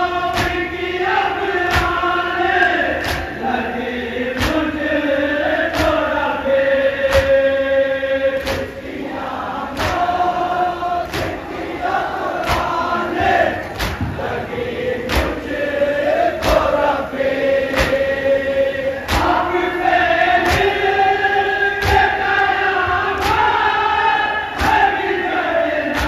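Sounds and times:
men chanting in unison: 0:00.0 - 0:26.0
chest-beating slaps: 0:00.3 - 0:00.7, 0:01.7 - 0:02.0, 0:03.0 - 0:03.4, 0:04.4 - 0:04.8, 0:05.7 - 0:06.1, 0:07.0 - 0:07.4, 0:08.4 - 0:08.8, 0:09.7 - 0:10.2, 0:11.0 - 0:11.7, 0:12.4 - 0:14.4, 0:15.0 - 0:15.6, 0:16.4 - 0:16.8, 0:17.7 - 0:18.2, 0:19.0 - 0:19.4, 0:20.4 - 0:20.9, 0:21.8 - 0:22.4, 0:23.2 - 0:23.6, 0:24.6 - 0:24.9.

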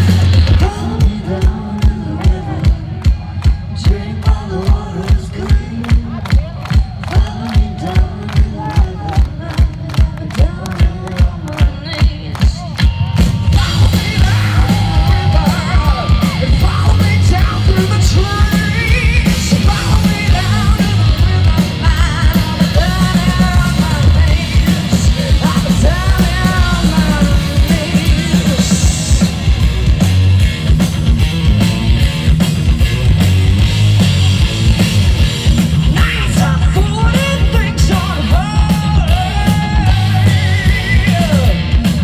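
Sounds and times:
live rock band playing: 0:00.0 - 0:42.0
woman singing: 0:07.0 - 0:12.7, 0:16.6 - 0:28.8.

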